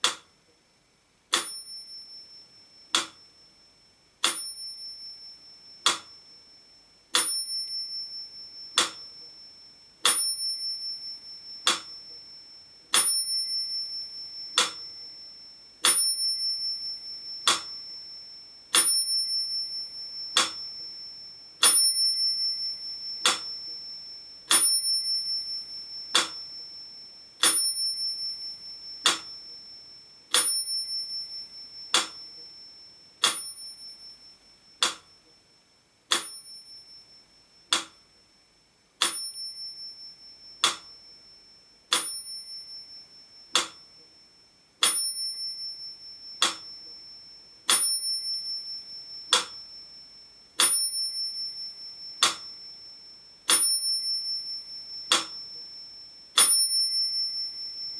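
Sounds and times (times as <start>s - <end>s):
metronome ticking: 0.0s - 0.3s, 1.3s - 2.0s, 2.8s - 3.3s, 4.2s - 6.2s, 7.2s - 9.4s, 10.0s - 12.2s, 12.9s - 15.2s, 15.8s - 18.1s, 18.7s - 26.8s, 27.4s - 29.7s, 30.3s - 33.9s, 34.7s - 35.4s, 36.1s - 37.0s, 37.6s - 38.1s, 39.0s - 41.1s, 41.9s - 42.8s, 43.4s - 44.1s, 44.8s - 49.8s, 50.6s - 52.7s, 53.5s - 55.8s
metronome bell ringing: 1.4s - 35.4s, 36.1s - 38.4s, 39.0s - 57.9s.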